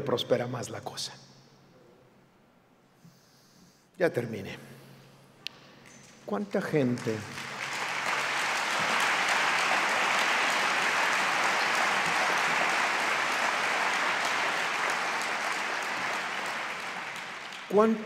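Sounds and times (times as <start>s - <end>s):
audience applauding: 6.7s - 18.0s.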